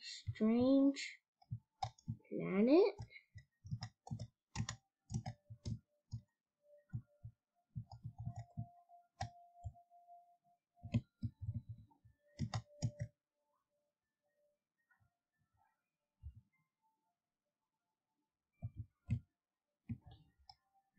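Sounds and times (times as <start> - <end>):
computer mouse clicking: 1.4 - 2.2, 3.0 - 6.3, 7.8 - 9.8, 10.8 - 11.8, 12.4 - 13.1.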